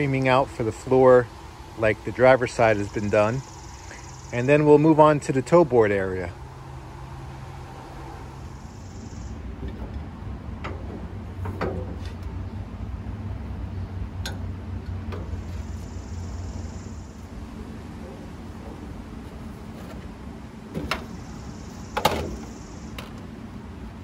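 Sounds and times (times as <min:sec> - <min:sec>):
steady low hum: 0:00.0 - 0:24.0
light metal clicks and knocks: 0:09.6 - 0:12.4.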